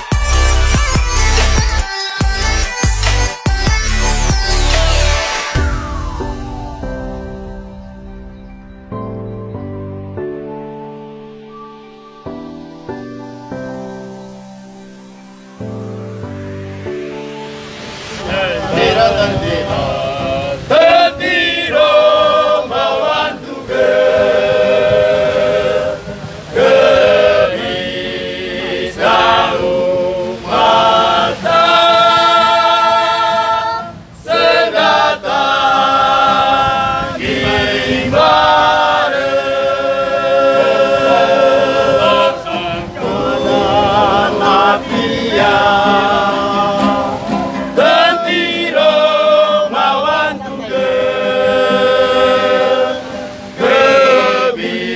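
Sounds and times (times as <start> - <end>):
men singing in harmony: 18.1 - 54.9.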